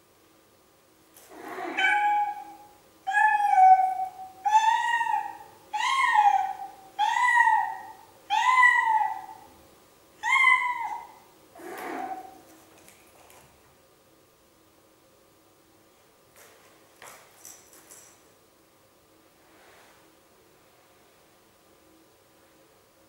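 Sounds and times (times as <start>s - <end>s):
cat meowing: 1.3s - 9.4s, 10.2s - 12.4s.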